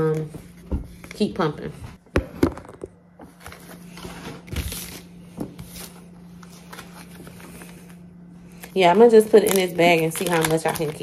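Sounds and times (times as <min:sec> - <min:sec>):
steady low hum: 0:00.0 - 0:11.0
plastic bags crinkling: 0:04.5 - 0:11.0.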